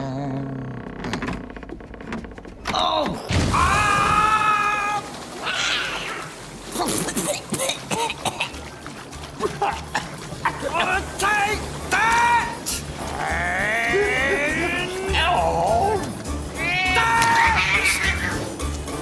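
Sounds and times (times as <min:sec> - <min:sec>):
loud high cry: 0:16.6 - 0:18.4.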